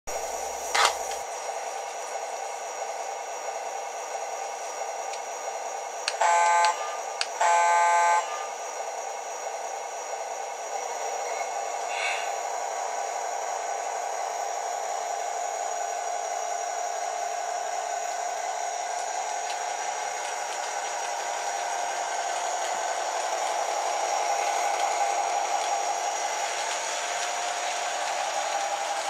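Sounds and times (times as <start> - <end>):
steady train running sound: 0.1 - 29.0
buzzy electronic diesel horn: 6.2 - 8.5.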